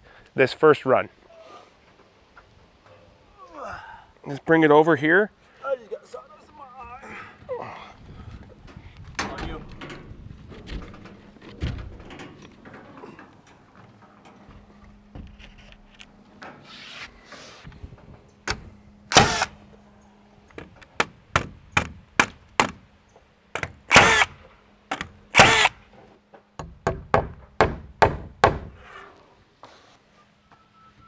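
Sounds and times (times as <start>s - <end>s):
nail gun firing: 18.5s - 19.5s, 23.6s - 25.8s.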